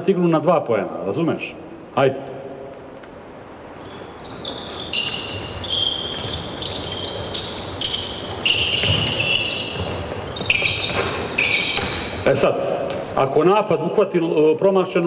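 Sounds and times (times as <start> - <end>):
shoes squeaking on court floor: 3.7 - 15.0
thumps of feet and ball: 4.4 - 12.2.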